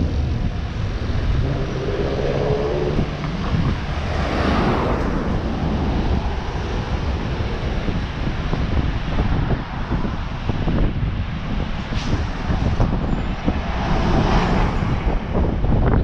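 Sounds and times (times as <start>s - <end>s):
car passing close: 0.0s - 10.2s
cars driving past: 0.0s - 15.9s
low traffic rumble: 0.0s - 16.0s.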